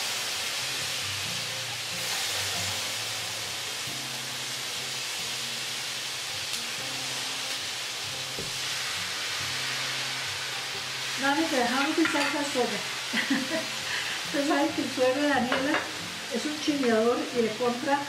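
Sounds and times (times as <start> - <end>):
food sizzling in a pan: 0.0 - 18.0.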